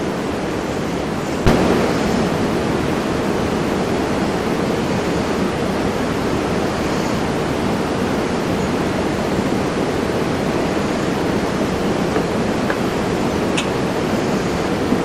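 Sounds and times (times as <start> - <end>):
steady rushing noise: 0.0 - 15.0.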